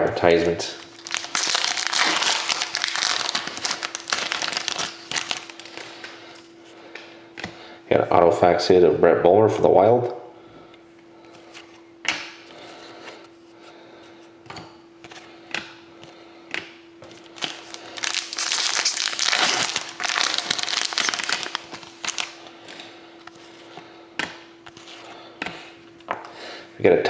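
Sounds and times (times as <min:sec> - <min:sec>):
foil wrapper tearing and crinkling: 0:00.8 - 0:06.1, 0:17.3 - 0:22.8.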